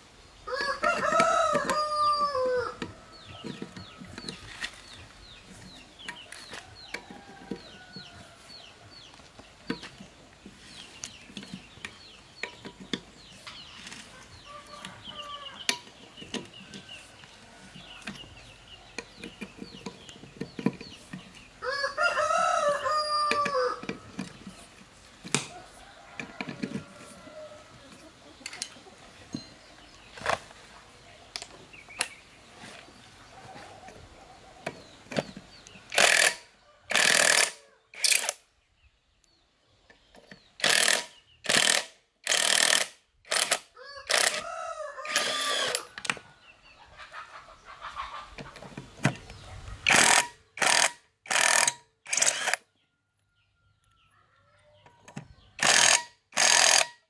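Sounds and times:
rooster crowing: 0:00.5 - 0:03.1, 0:21.6 - 0:24.0, 0:43.8 - 0:45.9
hand ratchet clicking: 0:35.9 - 0:38.4, 0:40.6 - 0:44.4, 0:49.9 - 0:52.6, 0:55.6 - 0:57.0
impact wrench bursts: 0:35.9 - 0:38.4, 0:40.6 - 0:44.4, 0:45.1 - 0:45.9, 0:49.8 - 0:52.6, 0:55.6 - 0:57.0.

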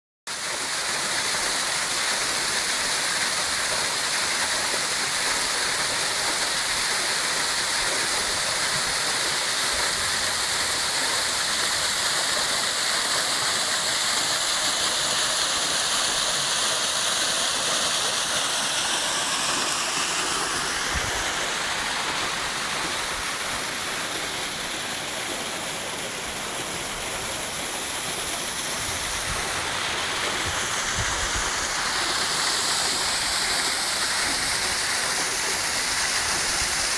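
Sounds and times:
waterfall rushing over rocks: 0:00.3 - 0:36.9.

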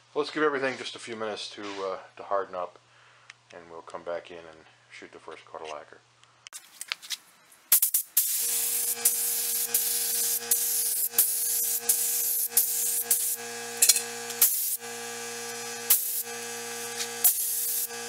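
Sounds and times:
spray gun hissing: 0:07.7 - 0:18.0.

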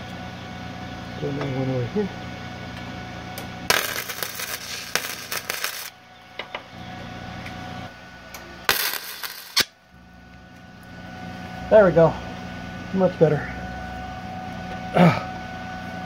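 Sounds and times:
welding arc crackling: 0:03.7 - 0:06.0, 0:08.7 - 0:09.8.

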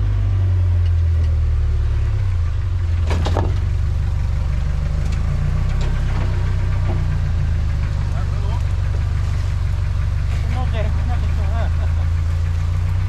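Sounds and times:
truck engine at low revs: 0:00.0 - 0:13.0
short clatter: 0:03.0 - 0:04.2, 0:04.9 - 0:10.7.

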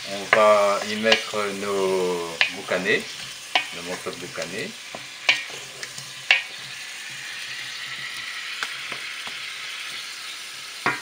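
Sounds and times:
sausage sizzling in pot: 0:00.0 - 0:11.0
wooden spatula knocking pot: 0:00.3 - 0:01.4, 0:03.5 - 0:03.8, 0:04.9 - 0:05.5, 0:06.3 - 0:06.5.

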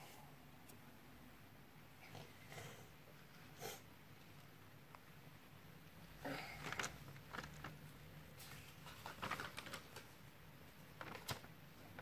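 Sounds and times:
plastic toys clicking and rustling: 0:06.5 - 0:07.8, 0:08.9 - 0:10.1.

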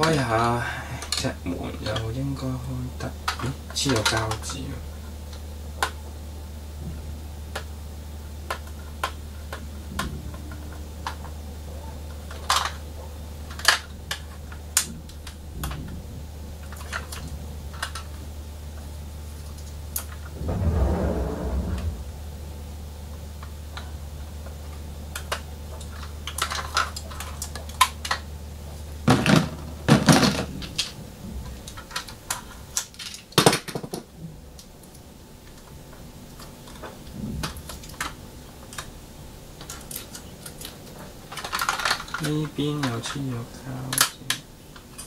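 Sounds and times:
low steady hum: 0:00.0 - 0:45.0
small clicks and taps on toy car: 0:25.2 - 0:28.2, 0:31.7 - 0:38.9, 0:39.6 - 0:43.3, 0:43.9 - 0:45.0.

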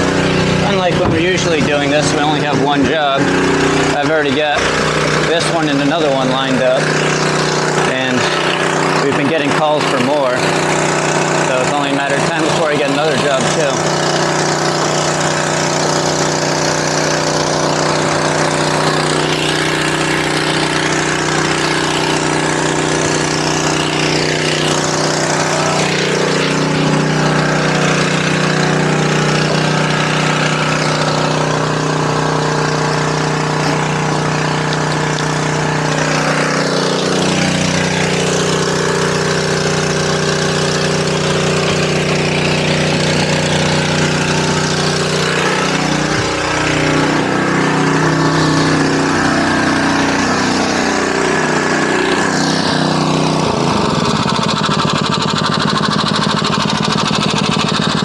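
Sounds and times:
small pump engine running: 0:00.0 - 0:58.0.

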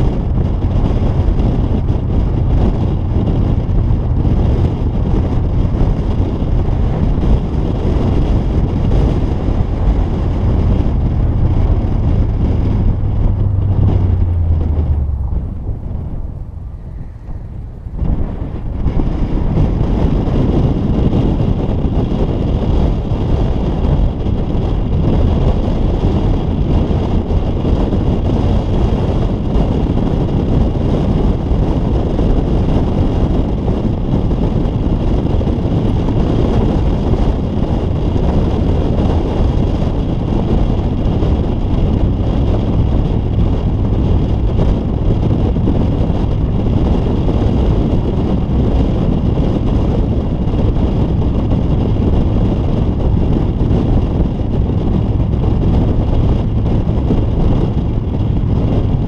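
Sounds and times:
road and tyre noise: 0:00.0 - 0:59.0
wind buffeting microphone: 0:00.0 - 0:59.0.

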